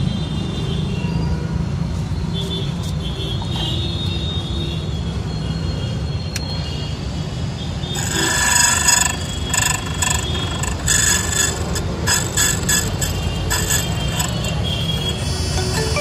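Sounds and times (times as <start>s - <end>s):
key cutter whining: 8.0s - 16.0s
motor humming: 8.0s - 16.0s.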